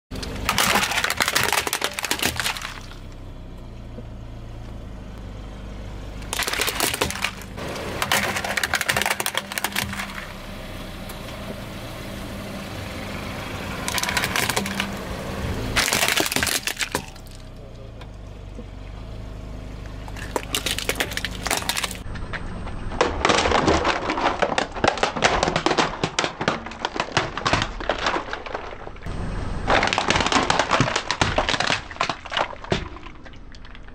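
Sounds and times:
plastic toys cracking under tyre: 0.1s - 3.2s, 6.2s - 10.4s, 13.8s - 15.0s, 15.8s - 17.6s, 20.0s - 33.9s.

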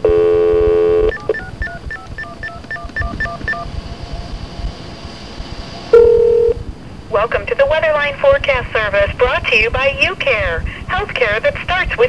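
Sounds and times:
keypad dialing tones: 0.0s - 3.7s
steady phone tone: 0.0s - 3.7s, 5.9s - 6.6s.

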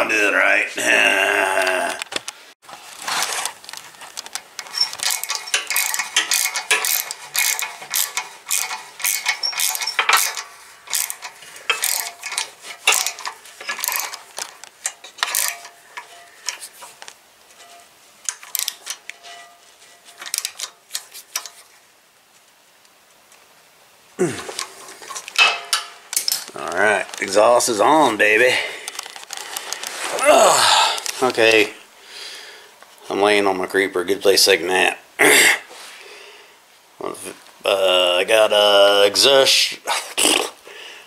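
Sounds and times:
socket ratchet clicking: 4.3s - 17.0s, 18.3s - 19.2s.

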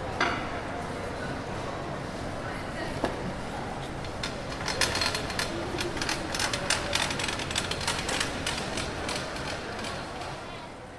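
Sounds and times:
wheeled luggage rattling on tiles: 3.9s - 10.4s.

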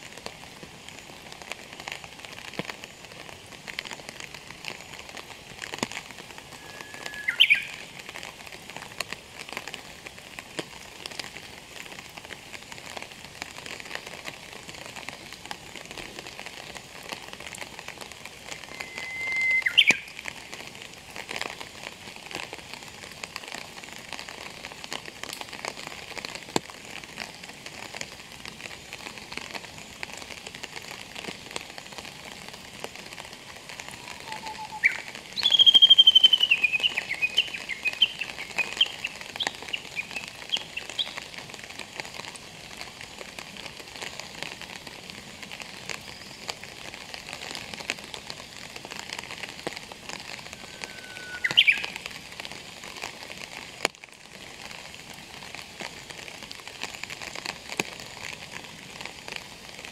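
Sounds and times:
rain pattering: 0.0s - 59.9s
bird whistled song: 6.6s - 7.8s, 18.6s - 20.1s, 34.0s - 41.2s, 50.6s - 52.0s.

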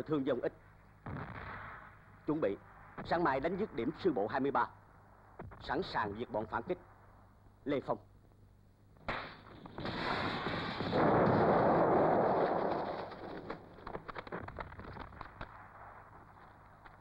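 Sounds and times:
scattered crackles and knocks: 9.0s - 17.0s
sharp crack: 9.0s - 17.0s
explosion blast: 9.1s - 15.0s.

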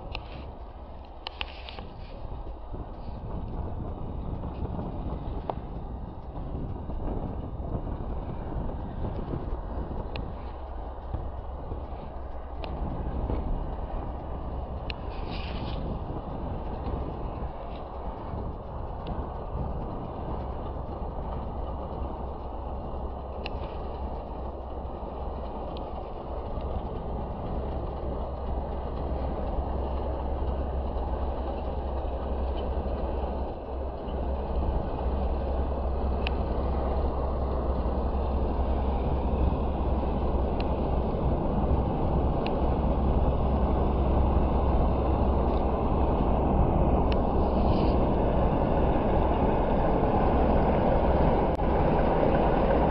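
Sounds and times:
faint clicks: 0.0s - 41.1s
train rumbling: 0.0s - 52.9s.

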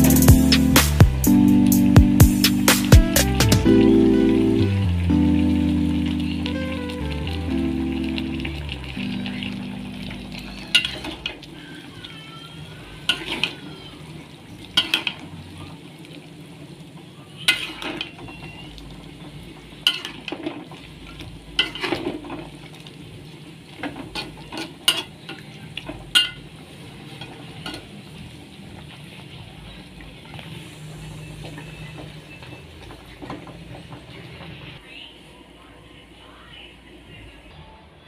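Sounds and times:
curry bubbling: 4.0s - 34.8s.

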